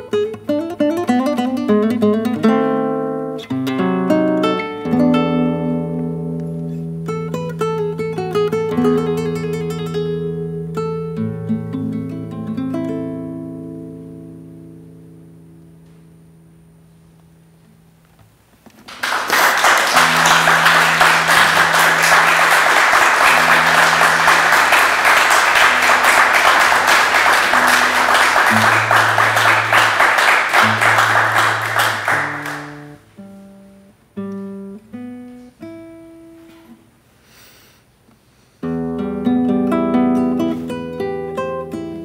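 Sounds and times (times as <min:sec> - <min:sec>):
classical guitar: 0:00.0 - 0:37.1, 0:38.6 - 0:42.0.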